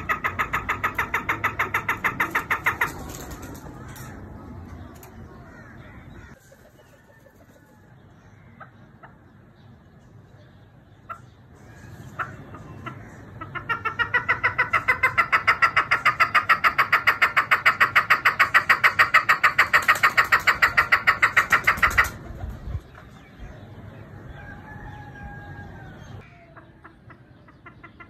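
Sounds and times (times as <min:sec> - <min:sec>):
partridge chuck calls: 0:00.0 - 0:07.6, 0:10.9 - 0:23.1, 0:26.4 - 0:28.0.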